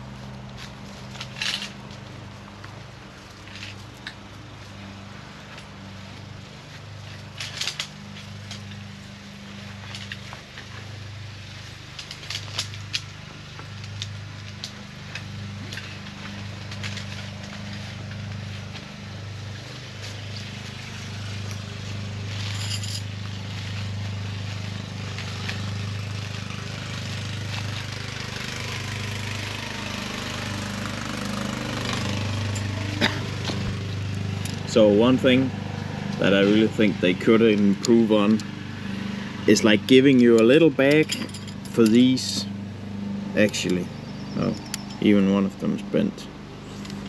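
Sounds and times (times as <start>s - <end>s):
low engine hum: 0.0s - 47.0s
camping gear clicking and crackling: 0.3s - 4.6s, 7.2s - 11.2s, 11.8s - 25.8s.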